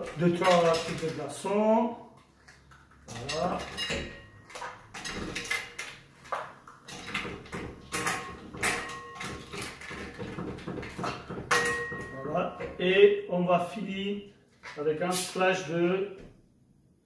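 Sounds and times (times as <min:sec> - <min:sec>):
ice cubes clinking in glass: 0:00.0 - 0:01.2, 0:07.9 - 0:10.2.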